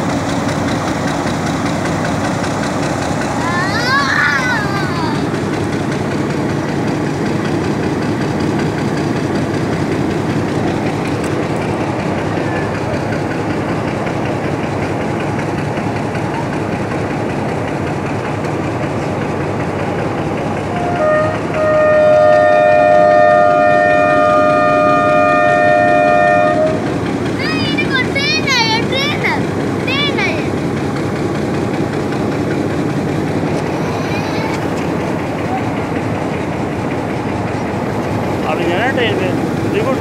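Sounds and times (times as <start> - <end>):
diesel locomotive engine rumble: 0.0 - 40.0
locomotive horn blast: 20.7 - 26.9.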